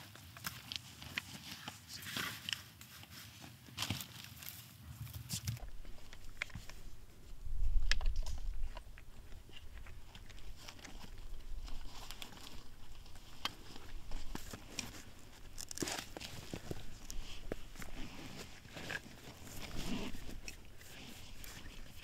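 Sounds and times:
low rumble: 0:05.6 - 0:14.6
footsteps crunching in snow: 0:05.6 - 0:22.0.

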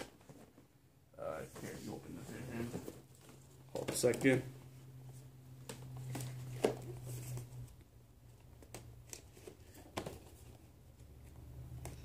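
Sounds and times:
packaging taps and rustles: 0:03.2 - 0:04.4.

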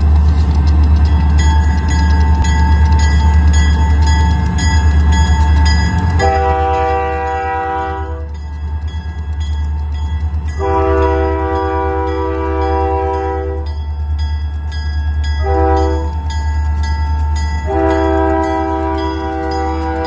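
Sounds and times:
locomotive engine rumbling: 0:00.0 - 0:20.0
crossing signal bell ringing: 0:00.8 - 0:20.0
train horn chord: 0:06.2 - 0:08.4, 0:10.6 - 0:13.8, 0:15.4 - 0:16.2, 0:17.6 - 0:20.0.

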